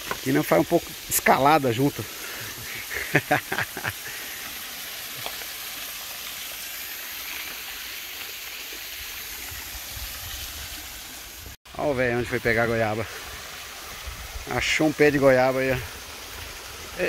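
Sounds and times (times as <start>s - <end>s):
waterfall hissing: 0.0s - 17.0s
person speaking: 0.1s - 2.1s.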